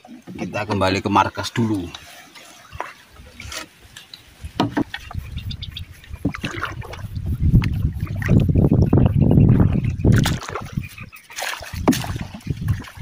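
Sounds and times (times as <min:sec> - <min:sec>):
paddle stroking through water: 0:00.0 - 0:13.0
water sloshing against hull: 0:00.0 - 0:13.0
sharp knocks: 0:04.6 - 0:05.0.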